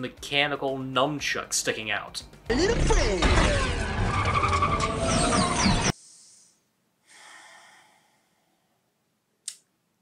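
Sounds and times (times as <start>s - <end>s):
film music: 0.0s - 5.9s
vehicle crash and skidding: 2.9s - 5.9s
person sighing: 7.0s - 8.5s.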